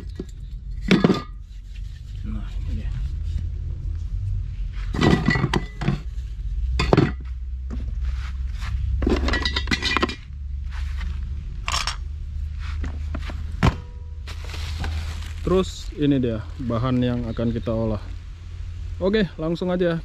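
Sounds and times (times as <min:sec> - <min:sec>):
cookware clinking and scraping: 0:00.0 - 0:01.4, 0:05.0 - 0:06.1, 0:06.8 - 0:07.2, 0:09.0 - 0:10.2
steady low hum: 0:00.0 - 0:20.0.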